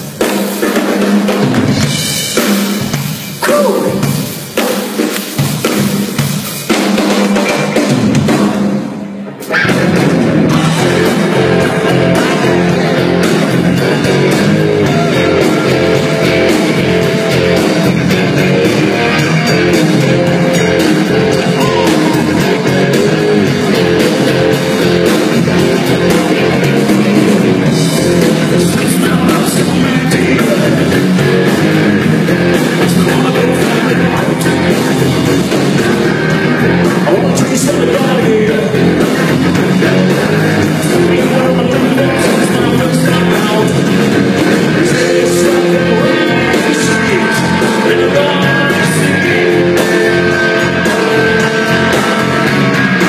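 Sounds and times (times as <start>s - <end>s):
drum kit hits: 0.0s - 53.0s
live rock band playing: 0.0s - 53.0s.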